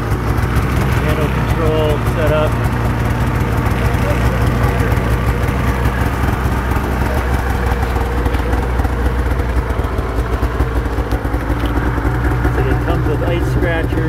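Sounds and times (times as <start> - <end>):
snowmobile engine idling: 0.0 - 14.0.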